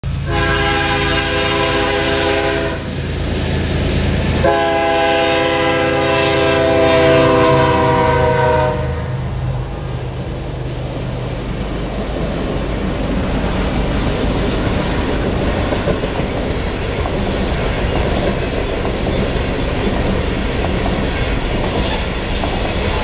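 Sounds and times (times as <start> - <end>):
diesel engines rumbling: 0.0 - 23.0
locomotive horn blasts: 0.2 - 2.9, 4.4 - 9.4
freight cars rolling by: 7.5 - 23.0.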